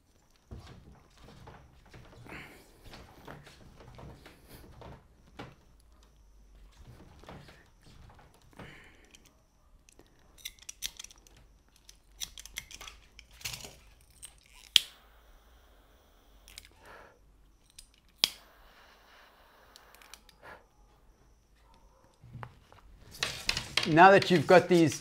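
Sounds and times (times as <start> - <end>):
pliers clicking and rustling: 8.4 - 15.0, 16.4 - 16.8, 17.5 - 18.4
sharp snaps: 14.5 - 15.0, 17.7 - 18.5.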